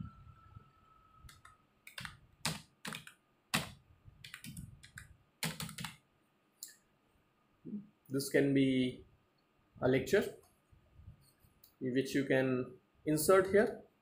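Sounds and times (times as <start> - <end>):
computer keyboard typing: 1.3 - 6.0.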